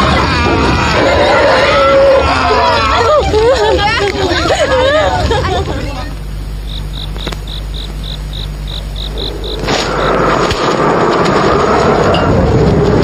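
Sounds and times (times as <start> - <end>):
low hum: 0.0 - 13.0
rushing noise with held tone: 5.9 - 13.0
cricket chirping: 6.2 - 10.5.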